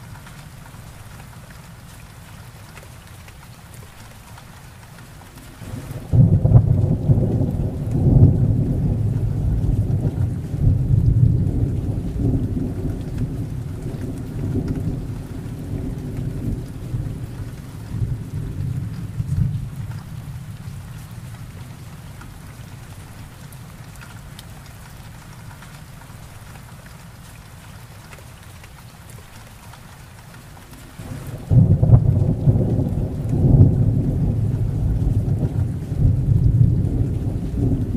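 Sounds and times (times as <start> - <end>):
steady rain: 0.0 - 37.9
thunder rumbling: 5.6 - 21.8, 31.0 - 37.9.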